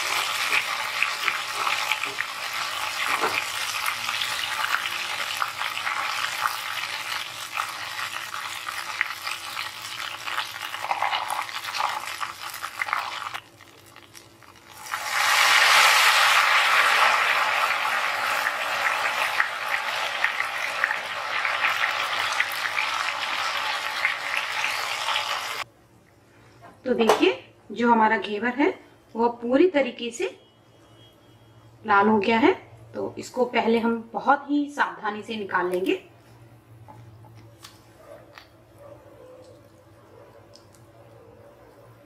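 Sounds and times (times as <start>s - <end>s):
batter sizzling in hot oil: 0.0s - 25.7s.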